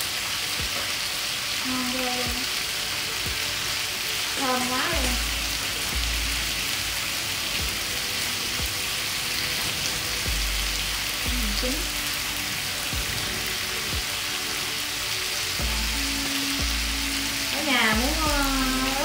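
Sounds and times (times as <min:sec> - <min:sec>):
meat sizzling on grill pan: 0:00.0 - 0:19.0.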